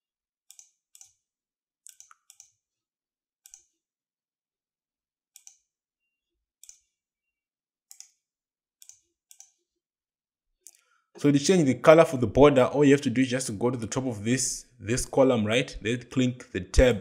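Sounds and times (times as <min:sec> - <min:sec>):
computer mouse clicks: 0:00.5 - 0:01.2, 0:01.8 - 0:02.6, 0:03.4 - 0:03.8, 0:05.3 - 0:05.7, 0:06.6 - 0:06.9, 0:07.9 - 0:08.2, 0:08.8 - 0:09.6.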